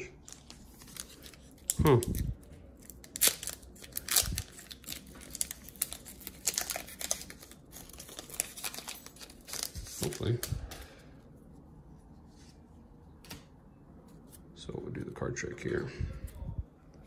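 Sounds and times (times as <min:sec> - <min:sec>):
foil wrapper crinkling and tearing: 0:00.2 - 0:10.9.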